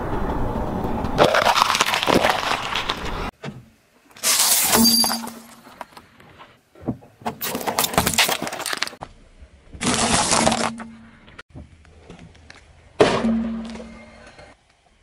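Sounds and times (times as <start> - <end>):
tyre crushing objects crunching: 1.2 - 3.3, 7.3 - 9.0, 9.8 - 11.0.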